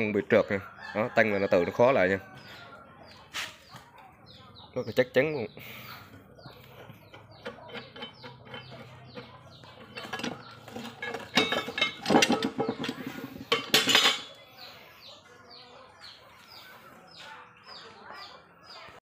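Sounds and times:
steel clamp clanking: 0:09.8 - 0:14.3.

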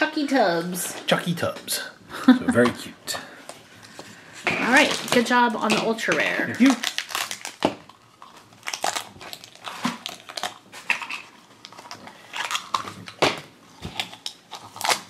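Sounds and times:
plastic packaging crinkling: 0:04.6 - 0:15.0.

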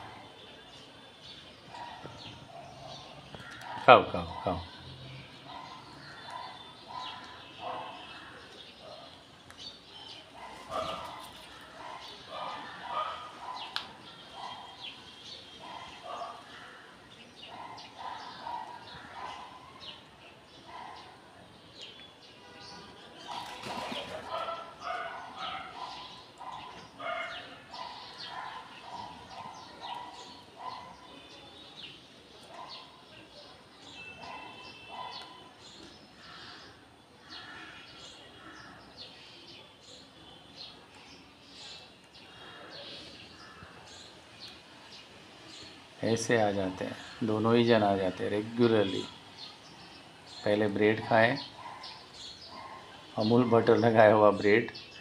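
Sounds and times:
crows cawing: 0:03.3 - 0:03.9, 0:18.2 - 0:19.6, 0:36.2 - 0:38.8, 0:43.4 - 0:43.8.

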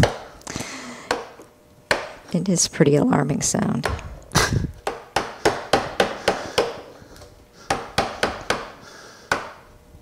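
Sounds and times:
chisel tapping wood: 0:04.8 - 0:06.8, 0:07.7 - 0:09.6.

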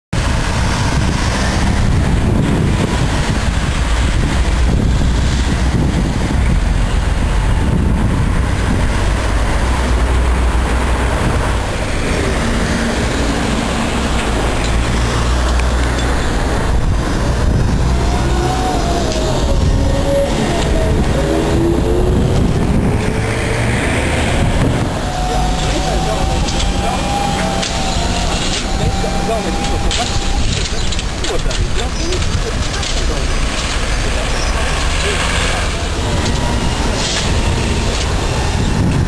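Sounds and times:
street traffic: 0:00.1 - 0:39.0
trolleybus passing: 0:00.2 - 0:39.0
gliding whine: 0:00.3 - 0:31.2.

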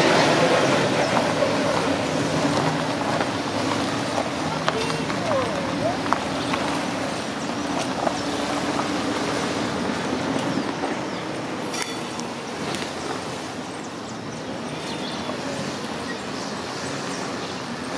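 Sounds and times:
train wagons rumbling on track: 0:00.0 - 0:17.9.

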